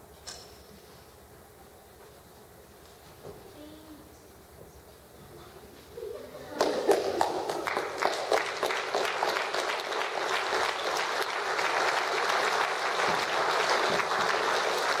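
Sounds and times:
audience applauding: 6.5s - 15.0s.

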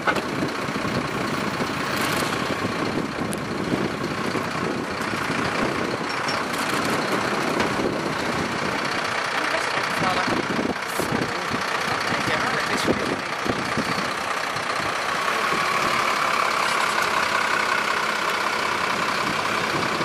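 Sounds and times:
truck engine running: 0.0s - 20.0s.

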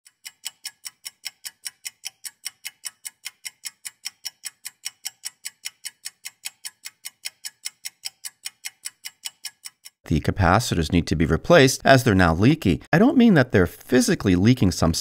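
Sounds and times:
mechanical ticking: 0.0s - 10.0s.

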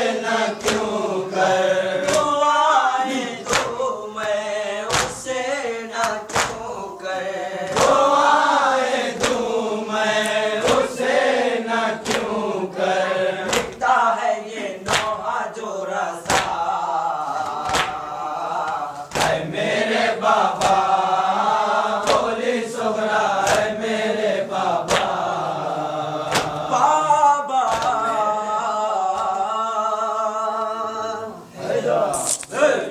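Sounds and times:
voices chanting a lament: 0.0s - 32.9s
hands beating chests: 3.5s - 3.8s, 4.9s - 5.3s, 14.9s - 15.2s, 16.2s - 16.6s.

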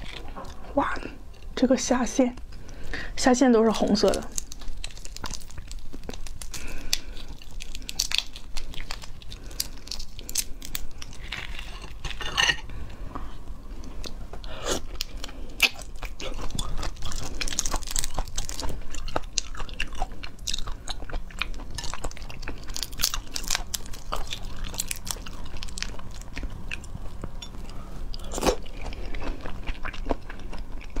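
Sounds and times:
shrimp shells cracking: 3.8s - 12.3s, 15.0s - 20.8s, 21.8s - 26.4s
chewing: 3.8s - 31.0s.

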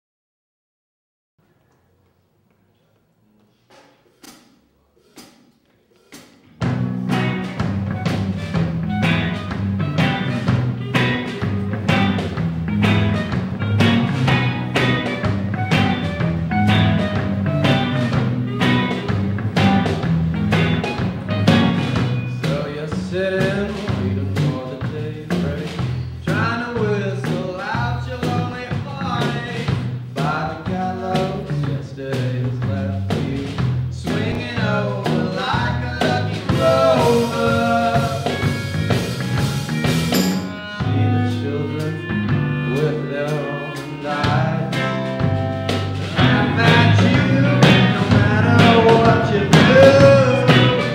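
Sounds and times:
drum kit beat: 4.0s - 50.9s
bass line: 6.5s - 50.9s
person singing: 22.4s - 38.5s, 40.8s - 45.4s, 46.1s - 50.9s.

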